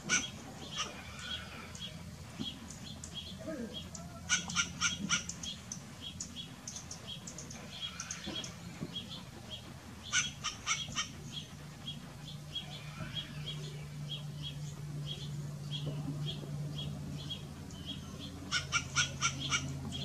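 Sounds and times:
bird harsh squawks: 0.0s - 1.8s, 3.8s - 5.6s, 10.0s - 11.4s, 18.5s - 19.8s
bird high chip calls: 0.0s - 15.4s, 17.2s - 20.0s.

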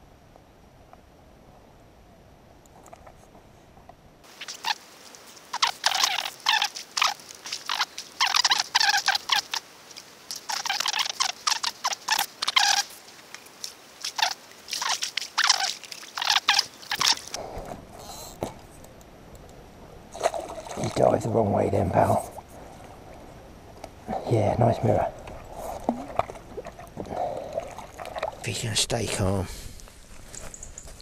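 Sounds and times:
crackling rustling handling noise: 28.3s - 31.0s.

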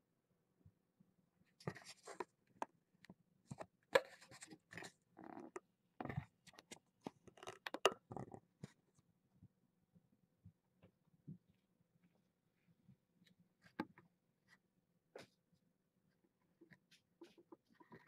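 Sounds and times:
kittens crackling and scratching: 1.5s - 2.6s, 3.5s - 9.0s, 16.2s - 18.0s.

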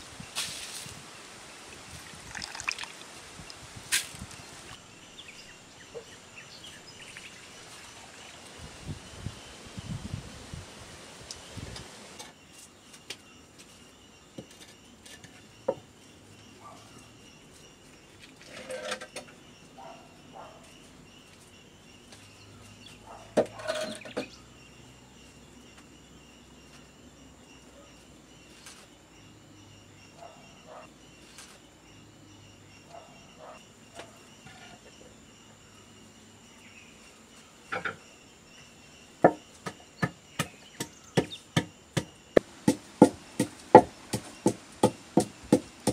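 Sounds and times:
insects chirring: 0.3s - 10.2s, 11.0s - 45.9s
pestle pounding in mortar: 39.3s - 45.9s.

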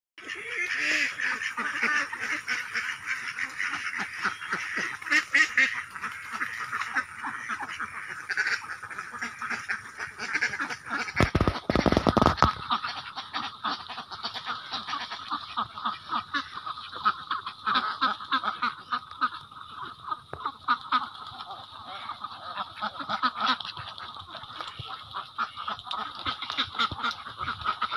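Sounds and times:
bills pecking in rice grain: 0.2s - 27.9s
ducks quacking: 0.2s - 27.9s.

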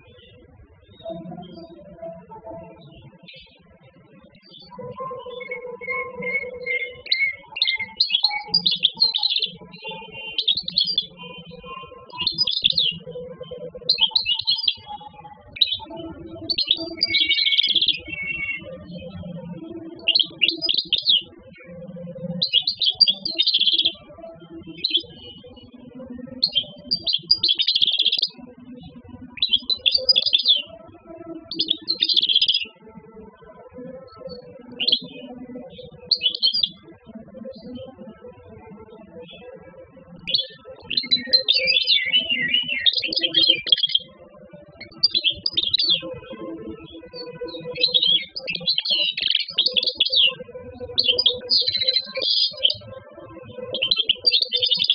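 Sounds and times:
bird twittering: 5.4s - 11.4s, 12.2s - 13.1s, 13.9s - 15.9s, 16.5s - 18.6s, 20.0s - 21.3s, 22.4s - 24.0s, 26.4s - 28.4s, 29.4s - 30.7s, 31.5s - 32.6s, 34.8s - 35.1s, 36.1s - 36.8s, 40.3s - 44.1s, 45.0s - 46.1s, 47.8s - 50.4s, 51.0s - 52.8s, 53.8s - 54.9s.

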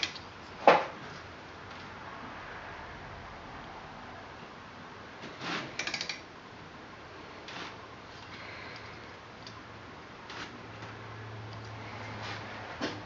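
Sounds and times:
ratchet wrench clicking: 5.8s - 6.2s.

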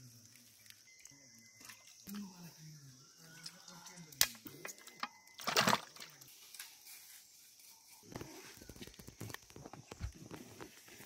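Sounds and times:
water splashing in a metal bowl: 5.4s - 6.2s.

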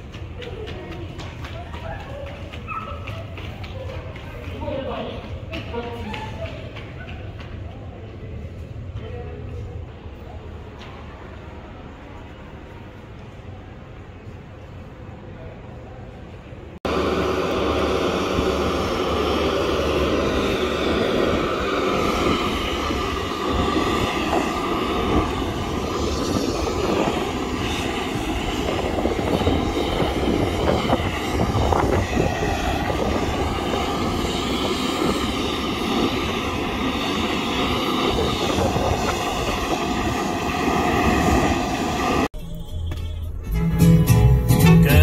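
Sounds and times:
turboprop engines whining: 16.6s - 45.0s.

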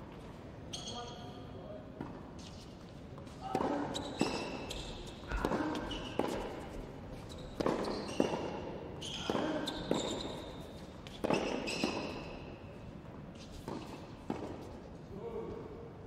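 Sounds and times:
shoes squeaking on court: 0.6s - 1.4s, 2.0s - 14.8s
tennis ball bouncing: 3.5s - 6.8s, 7.5s - 12.4s, 13.0s - 14.8s
tennis racket striking ball: 7.6s - 10.2s.

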